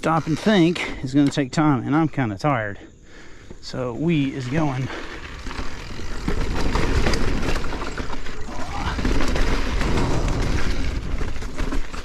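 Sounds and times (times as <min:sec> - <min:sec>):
bike rattling over bumps: 0:00.0 - 0:02.2, 0:04.0 - 0:12.0
wind and tyre rumble: 0:04.1 - 0:12.0.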